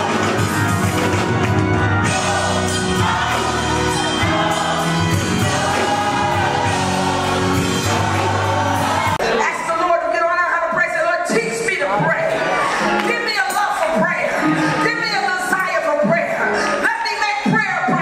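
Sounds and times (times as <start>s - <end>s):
instrumental accompaniment with bass: 0.0s - 9.3s
gospel choir singing: 0.0s - 9.6s.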